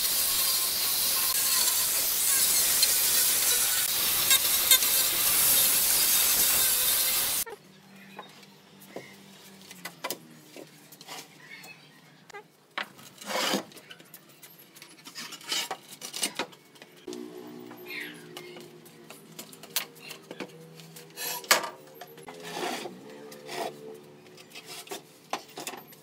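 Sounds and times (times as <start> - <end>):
angle grinder sanding wood: 0.0 - 7.5
wood scraping: 20.9 - 25.9.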